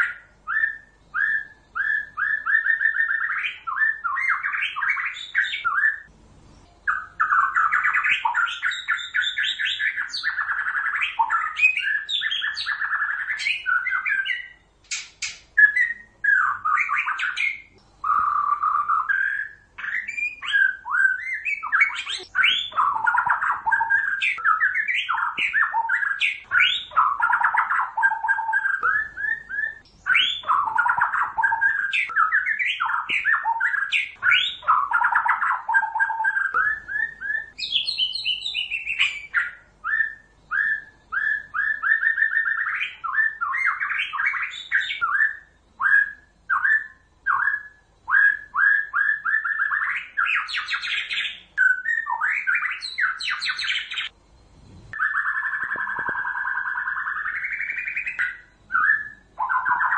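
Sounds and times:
songbird singing varied song: 0.0 - 59.9.

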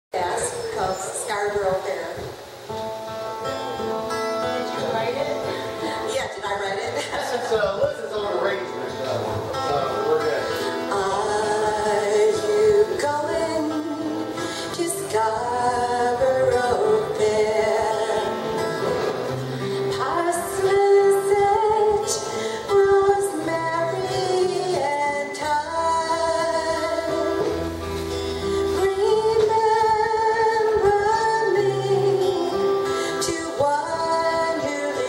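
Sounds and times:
strummed acoustic guitar: 2.5 - 35.0
woman singing: 10.8 - 18.7, 19.6 - 27.7, 28.4 - 35.0.

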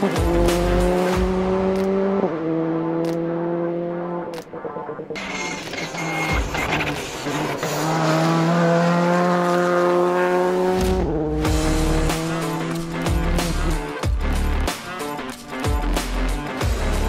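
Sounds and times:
background music: 0.0 - 6.6, 10.5 - 17.0
rally car engine revving: 0.0 - 17.0.

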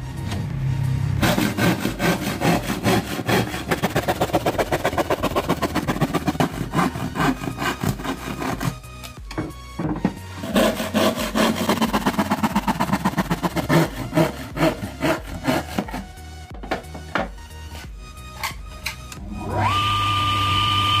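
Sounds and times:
handsaw cutting plywood: 1.2 - 9.1, 10.3 - 16.2.

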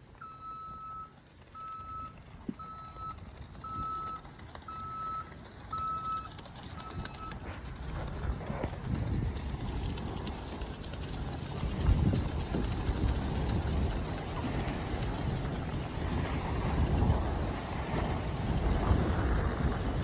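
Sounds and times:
truck engine rumble: 0.0 - 20.0
reversing alarm beeping: 0.2 - 7.4.

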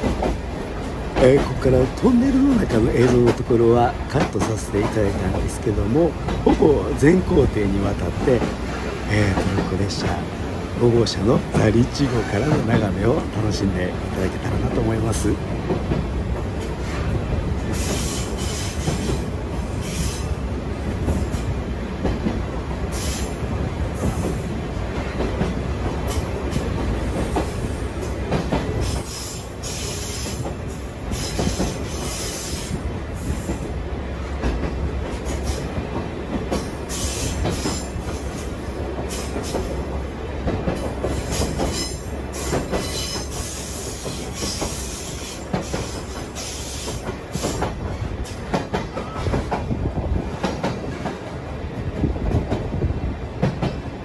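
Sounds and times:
train wheels rumbling on rails: 0.0 - 54.0
clacks and rattles: 2.5 - 10.3.

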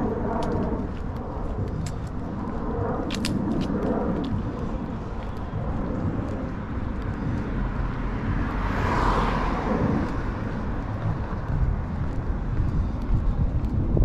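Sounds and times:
low traffic rumble: 0.0 - 14.0
car driving past: 8.0 - 10.5.

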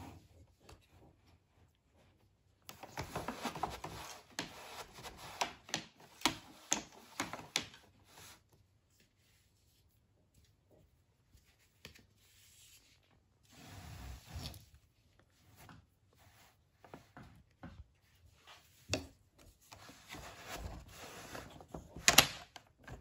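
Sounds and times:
wooden loom clicks and taps: 5.2 - 7.8.

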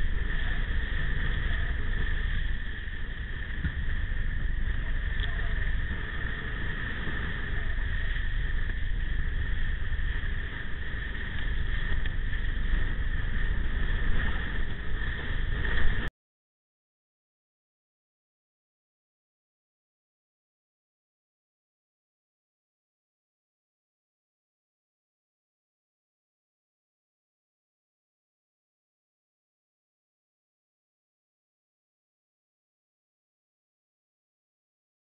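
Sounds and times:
board planing across water: 0.0 - 16.1
wind buffeting camera: 0.0 - 16.1.

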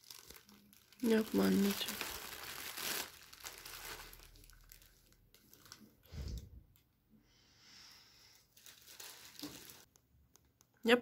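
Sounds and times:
plastic bag and paper crinkling: 0.0 - 6.4, 8.4 - 9.9.

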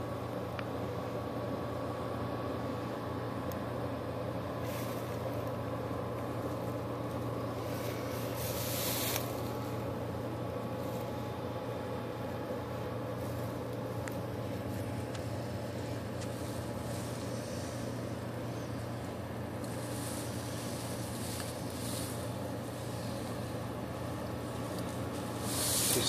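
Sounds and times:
machinery humming: 0.0 - 26.0
hiss bursts: 7.7 - 9.6, 19.6 - 23.6, 24.7 - 26.0.

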